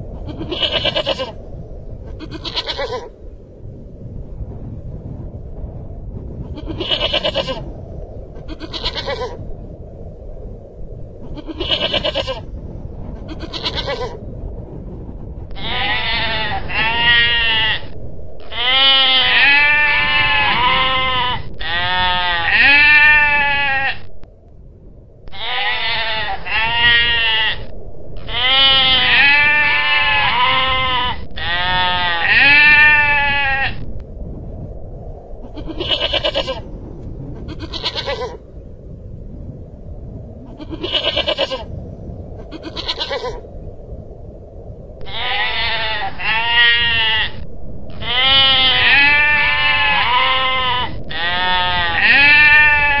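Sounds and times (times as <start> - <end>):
goral bleating: 0.2 - 1.4, 2.1 - 3.1, 6.5 - 7.6, 8.4 - 9.4, 11.4 - 12.5, 13.3 - 14.2, 15.5 - 24.1, 25.3 - 33.8, 35.5 - 36.6, 37.4 - 38.4, 40.5 - 41.7, 42.5 - 43.4, 45.0 - 53.0.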